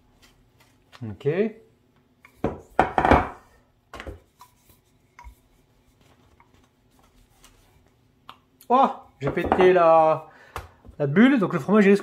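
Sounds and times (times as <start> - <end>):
knocks on kitchen work surface: 2.4 - 3.4, 9.3 - 9.7.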